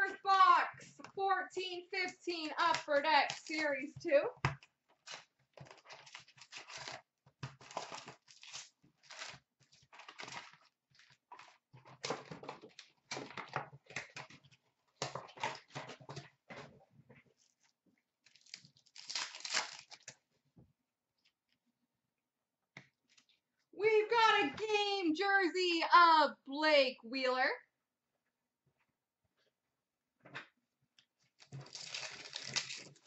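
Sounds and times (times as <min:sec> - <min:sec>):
wrappers crinkling: 0:02.8 - 0:03.7, 0:05.0 - 0:07.0, 0:07.6 - 0:11.6, 0:18.2 - 0:20.1, 0:31.4 - 0:33.0
foil packs tearing: 0:03.3 - 0:03.6, 0:05.1 - 0:07.0, 0:07.6 - 0:11.1, 0:18.3 - 0:20.1, 0:31.4 - 0:33.0.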